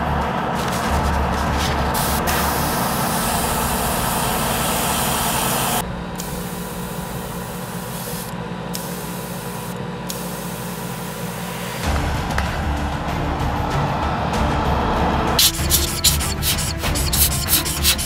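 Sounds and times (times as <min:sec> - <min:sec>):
low hum: 0:00.0 - 0:09.0
spray paint hissing: 0:00.5 - 0:11.8, 0:15.4 - 0:18.0.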